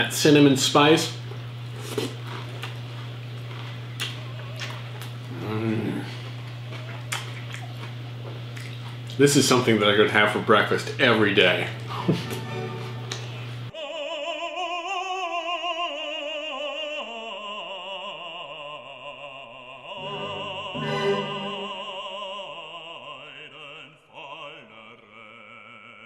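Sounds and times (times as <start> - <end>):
operatic voice singing: 13.7 - 26.0
classical accompaniment: 20.0 - 21.9.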